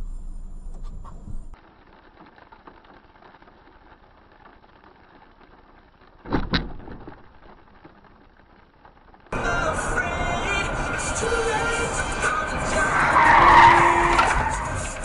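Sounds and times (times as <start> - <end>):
vehicle collision bangs: 11.7 - 15.0.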